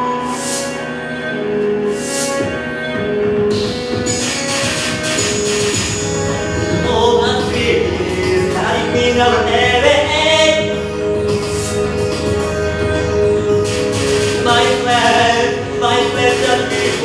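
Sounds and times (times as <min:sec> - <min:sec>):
held backing tones: 0:00.0 - 0:17.0
person singing long notes: 0:06.0 - 0:11.2.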